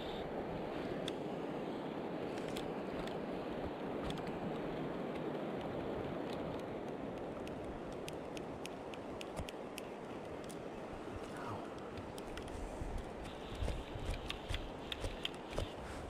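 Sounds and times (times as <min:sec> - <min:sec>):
faint ticks: 0:04.0 - 0:10.6.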